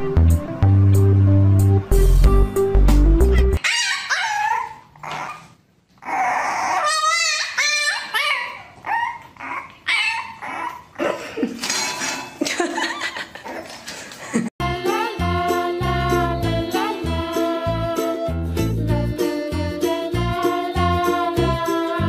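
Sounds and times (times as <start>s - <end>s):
puppy yipping and whining: 3.3s - 11.0s.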